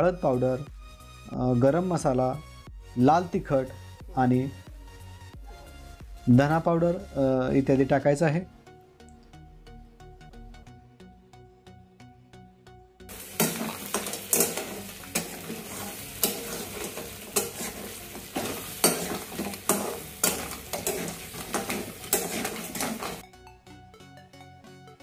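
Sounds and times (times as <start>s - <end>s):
food sizzling in oil: 13.1s - 23.2s
metal spatula scraping a pan: 13.1s - 23.2s.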